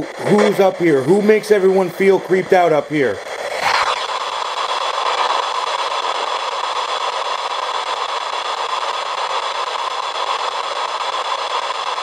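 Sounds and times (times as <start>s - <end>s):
radio static hiss: 0.0s - 12.0s.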